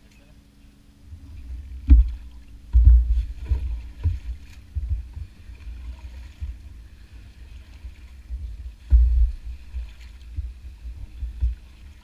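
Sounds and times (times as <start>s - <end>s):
faint steady hum: 0.0s - 12.0s
paddle thuds and splashes: 1.5s - 12.0s.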